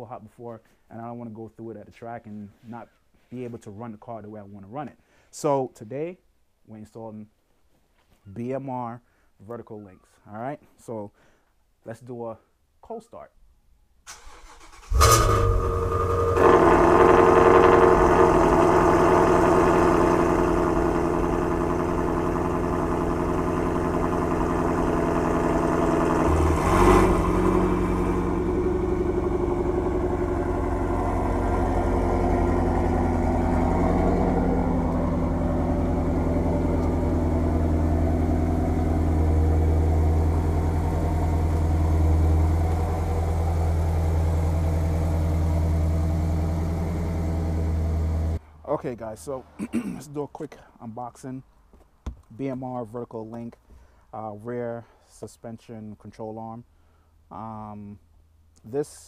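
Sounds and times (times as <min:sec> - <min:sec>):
car engine fast idle: 0:14.1 - 0:48.4.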